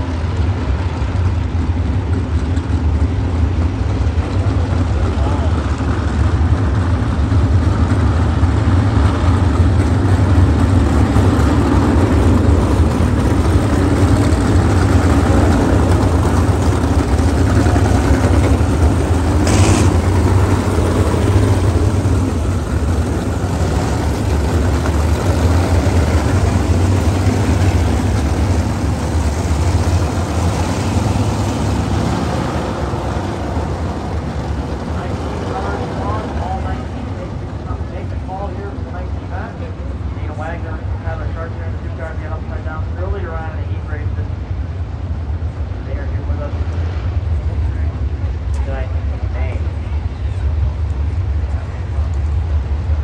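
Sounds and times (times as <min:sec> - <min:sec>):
racing car engines droning: 0:00.0 - 0:53.0
cars passing close by: 0:02.2 - 0:39.5.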